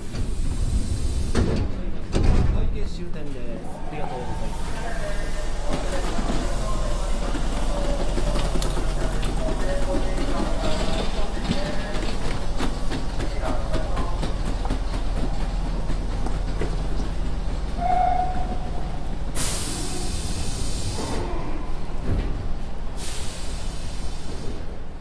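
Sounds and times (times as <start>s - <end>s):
electric train rumbling: 0.0s - 25.0s
train brake squeal: 17.8s - 18.6s
compressed air hissing: 19.3s - 21.3s, 23.0s - 24.7s.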